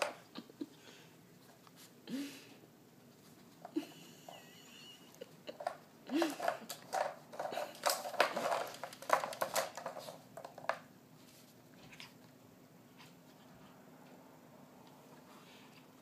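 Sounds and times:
plastic treat puzzle clicking and scraping: 5.5 - 10.8.

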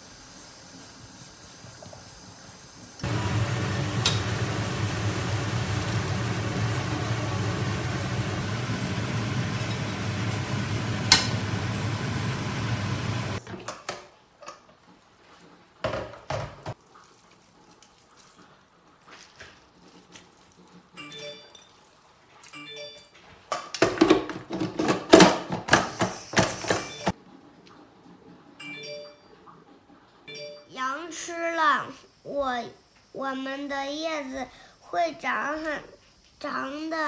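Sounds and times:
potatoes sizzling in hot oil: 0.0 - 13.4.

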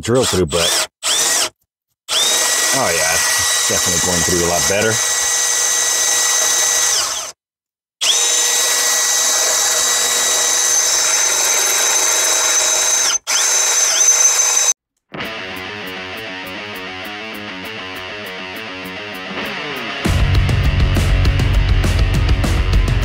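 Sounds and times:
electric drill whining through steel: 0.1 - 7.4, 8.0 - 14.8
guitar music: 15.1 - 22.9.

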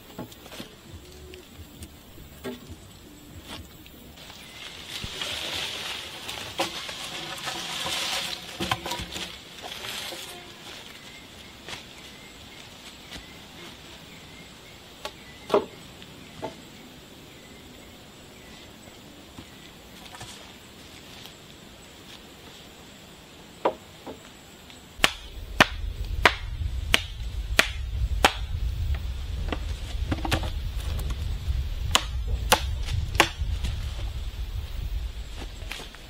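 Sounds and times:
faint insect buzz: 0.0 - 26.2
blade chopping wood: 25.0 - 28.5, 31.9 - 33.5.

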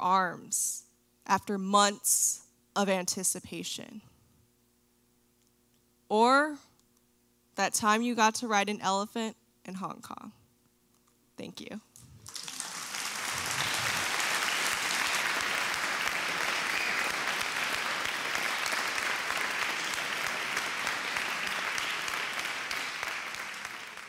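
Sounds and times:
audience applauding: 12.2 - 24.0.

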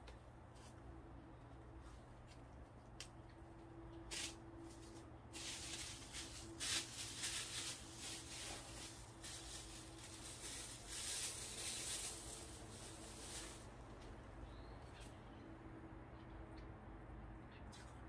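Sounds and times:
faint steady hum: 0.0 - 18.0
wrappings rustling and crinkling: 4.6 - 14.0.

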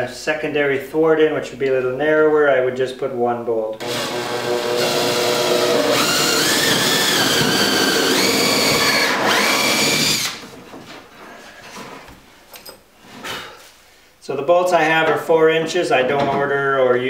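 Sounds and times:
cordless drill boring into wood: 3.8 - 10.5.

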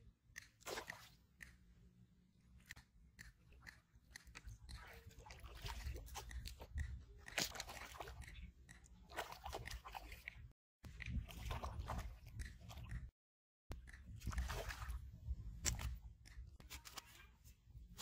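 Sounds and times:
fish splashing at the surface: 0.6 - 1.2, 14.3 - 15.0.

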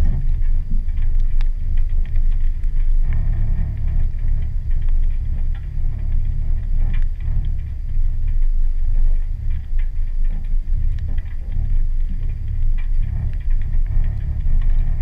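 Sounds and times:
engine and tyres rumbling: 0.0 - 15.0
light ticks and taps: 0.9 - 5.7.

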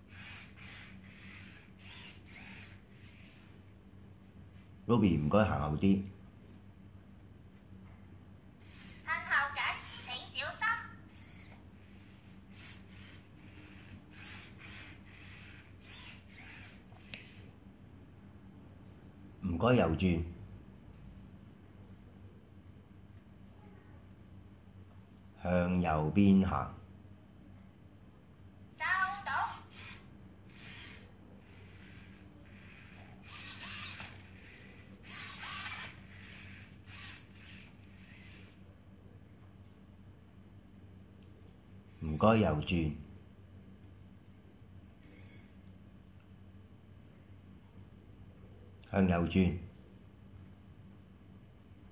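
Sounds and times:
robot servo motors whirring: 0.0 - 3.5, 8.6 - 9.1, 9.8 - 10.2, 11.1 - 17.5, 29.5 - 38.6, 45.0 - 45.6.

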